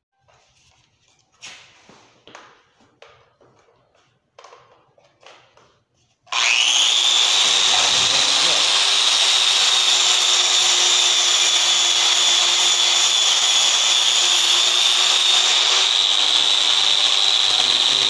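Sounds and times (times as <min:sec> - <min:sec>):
angle grinder whining: 0:06.3 - 0:18.0
disc grinding tile: 0:07.0 - 0:18.0.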